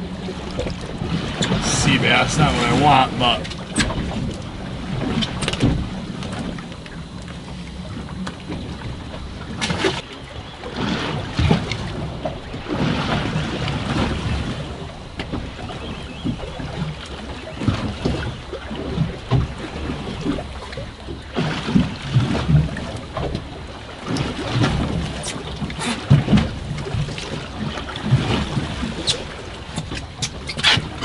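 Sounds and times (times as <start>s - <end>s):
waves slapping boat hull: 0.0s - 31.0s.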